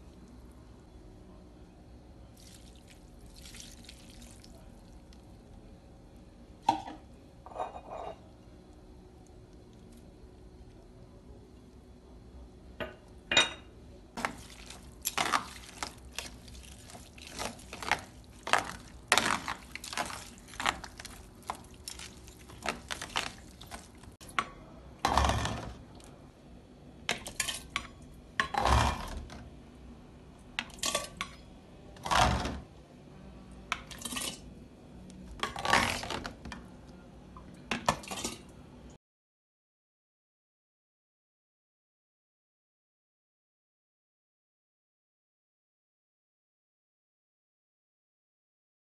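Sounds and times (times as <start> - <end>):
metal cup scooping and pouring: 14.2 - 24.1
metal utensils stirring in pot: 14.2 - 25.8, 27.1 - 29.2, 33.8 - 34.5.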